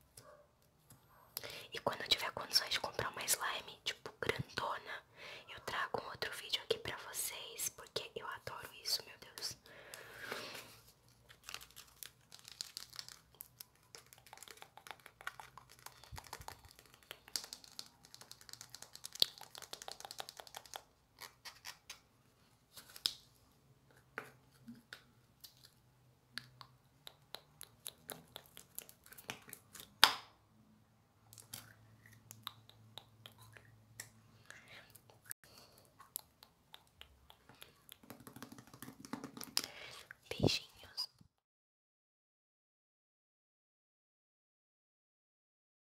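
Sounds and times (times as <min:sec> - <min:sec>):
sticky slime crackling and clicking: 0:11.6 - 0:20.9.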